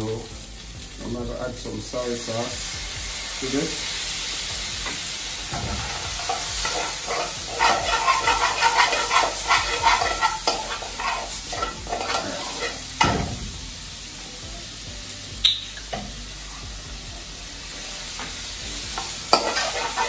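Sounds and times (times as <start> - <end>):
chicken sizzling in a wok: 0.0 - 20.0
metal spoon scraping a pan: 4.4 - 13.2, 19.0 - 20.0.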